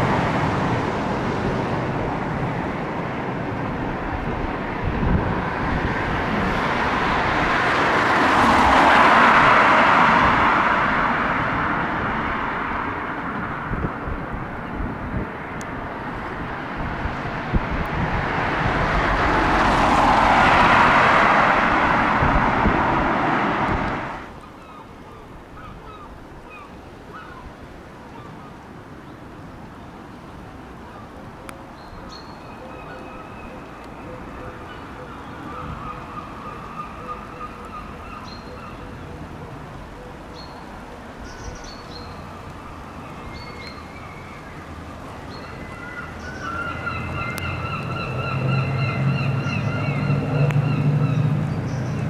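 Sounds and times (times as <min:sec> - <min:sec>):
passing vehicle rushing: 0:00.0 - 0:24.4, 0:40.6 - 0:52.0
distant train rumble: 0:00.0 - 0:24.7
birds chirping: 0:31.7 - 0:39.3, 0:39.9 - 0:52.0.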